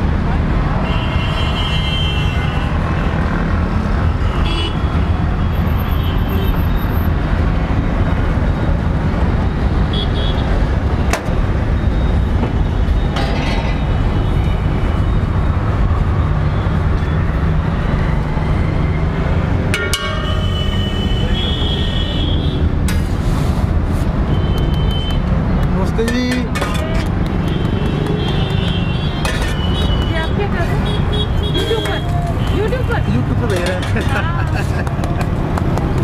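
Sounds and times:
street traffic rumble: 0:00.0 - 0:36.0.

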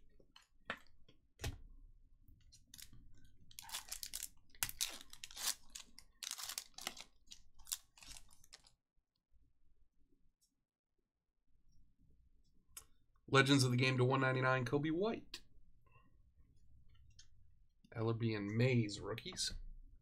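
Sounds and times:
foil wrapper tearing and crinkling: 0:03.5 - 0:08.7.

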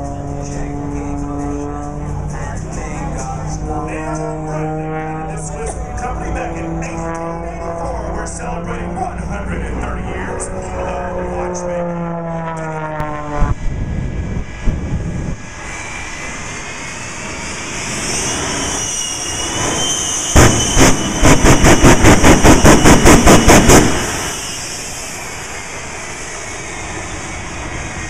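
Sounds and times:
jet engines whining: 0:00.0 - 0:28.0.

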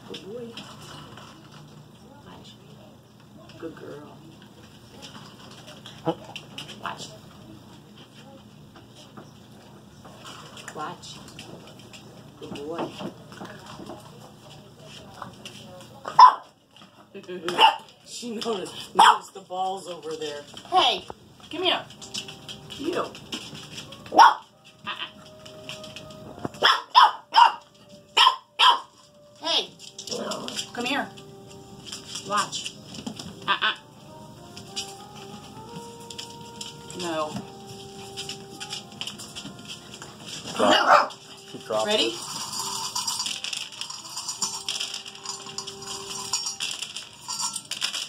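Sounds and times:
kibble rattling on wooden floor: 0:00.0 - 0:02.2, 0:03.3 - 0:08.2, 0:10.0 - 0:33.8, 0:34.4 - 0:48.0
puppies crunching kibble: 0:00.0 - 0:02.2, 0:03.0 - 0:48.0
puppies high-pitched barks: 0:16.1 - 0:16.6, 0:17.5 - 0:17.9, 0:19.0 - 0:19.3, 0:24.1 - 0:25.2, 0:26.5 - 0:29.0, 0:40.5 - 0:41.3.

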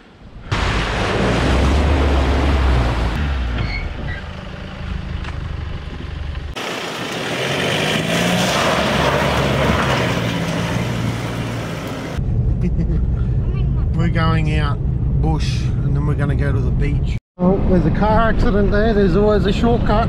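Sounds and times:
vehicle rushing through water: 0:00.5 - 0:03.2, 0:06.6 - 0:12.2
engine straining uphill: 0:00.5 - 0:12.2
vehicle engine running under load: 0:00.5 - 0:12.2.

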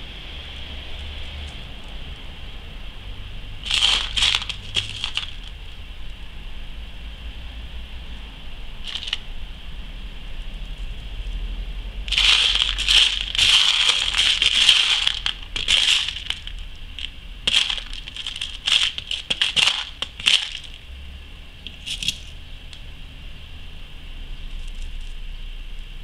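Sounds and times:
beads rattling in plastic tub: 0:03.6 - 0:05.5, 0:08.9 - 0:09.2, 0:12.1 - 0:20.8.

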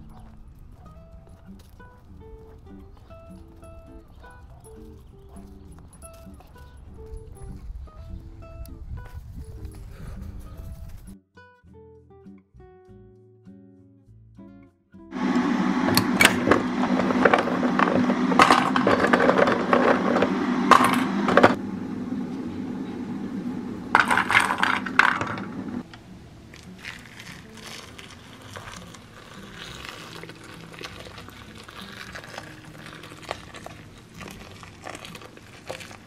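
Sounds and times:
steady low hum: 0:15.2 - 0:26.4
mushrooms rattling in metal bowl: 0:16.0 - 0:21.6, 0:23.6 - 0:25.8, 0:26.6 - 0:36.0.

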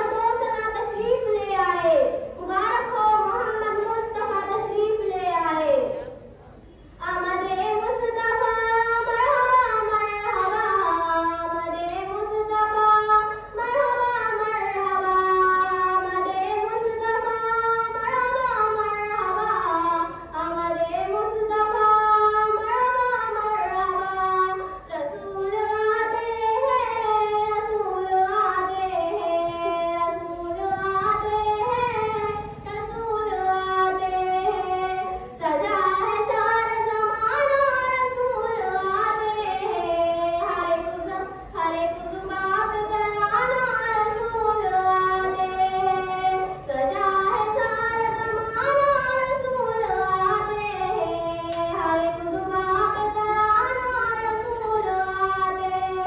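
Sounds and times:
girl singing devotional song: 0:00.0 - 0:56.0.

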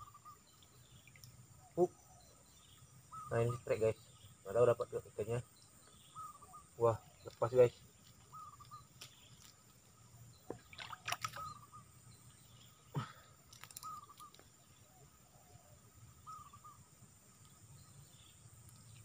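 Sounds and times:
bird wavering call: 0:03.1 - 0:03.6, 0:05.9 - 0:07.2, 0:08.3 - 0:08.9, 0:10.9 - 0:11.9, 0:13.7 - 0:14.4, 0:16.2 - 0:16.8
splashes in shallow water: 0:10.5 - 0:11.6.

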